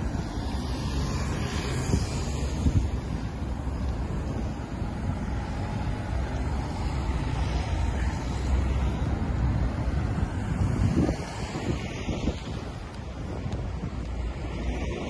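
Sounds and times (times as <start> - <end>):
cars passing on city street: 0.0 - 15.0
wind buffeting microphone: 0.0 - 15.0.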